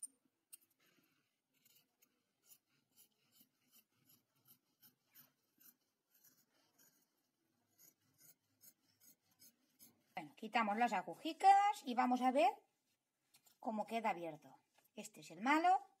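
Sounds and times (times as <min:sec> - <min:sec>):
scissors snipping fabric: 0:01.6 - 0:07.1.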